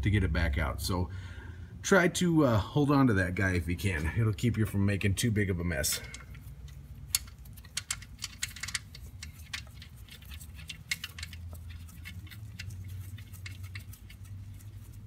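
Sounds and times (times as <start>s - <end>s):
steady low hum: 0.0s - 15.0s
metallic clicks and ticks: 5.9s - 15.0s.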